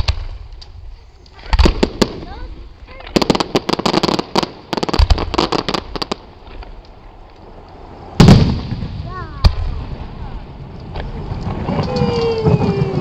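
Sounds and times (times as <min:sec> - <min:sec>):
fireworks crackling pops: 0:00.0 - 0:13.0
deep firework boom: 0:08.1 - 0:13.0.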